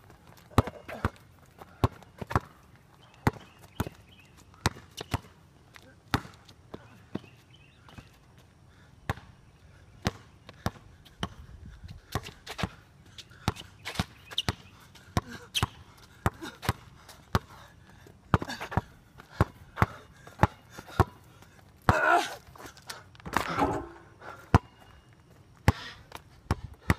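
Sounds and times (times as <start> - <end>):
basketball bouncing on concrete: 0.4 - 2.6, 3.2 - 4.0, 4.6 - 5.3, 6.1 - 6.4, 18.3 - 21.2, 23.3 - 24.7.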